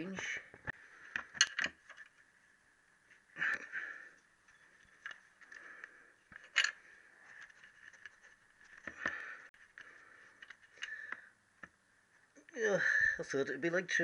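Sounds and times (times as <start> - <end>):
metallic clicks and scrapes: 4.4 - 11.2.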